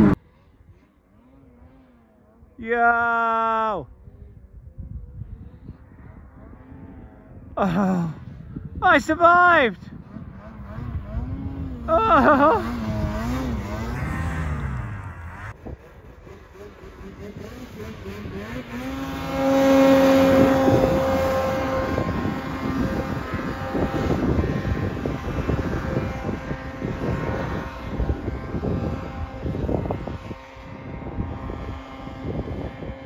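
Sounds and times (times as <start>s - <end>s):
snowmobile engine revving: 0.0s - 33.0s.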